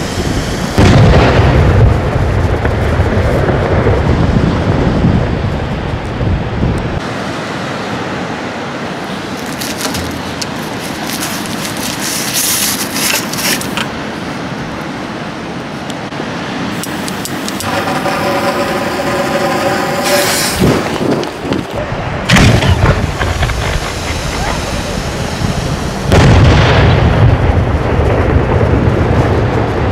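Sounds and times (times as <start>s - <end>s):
rushing outdoor noise: 0.0s - 29.9s
scattered crackles: 9.2s - 14.0s, 16.8s - 25.0s
lit fuse hissing: 16.8s - 21.8s.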